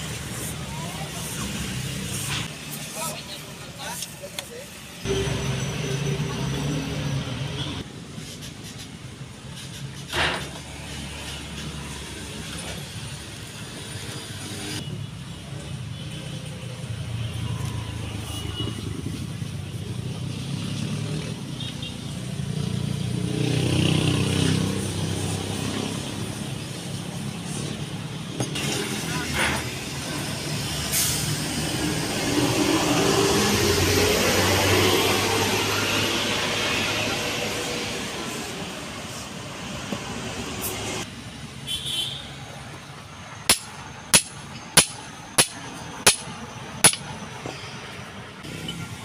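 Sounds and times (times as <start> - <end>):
hammer striking steel punch: 43.5 - 47.1.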